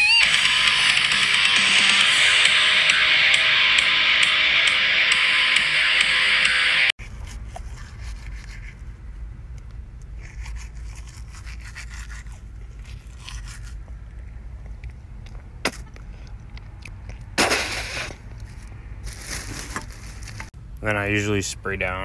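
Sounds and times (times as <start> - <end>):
toothbrush scrubbing teeth: 7.1 - 8.8, 10.1 - 13.9.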